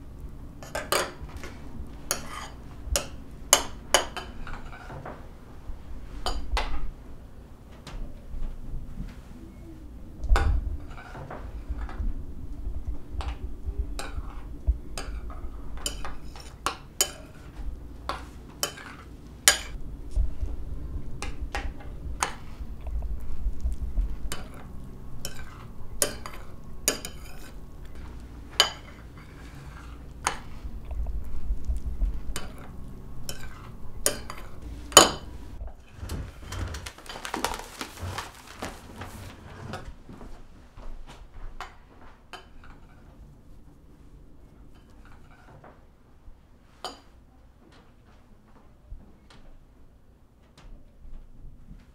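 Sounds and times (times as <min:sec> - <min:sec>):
low background rumble: 0:00.0 - 0:40.0
soft hissy scraping: 0:17.2 - 0:40.8
spoon clinking against a dish: 0:24.3 - 0:27.6.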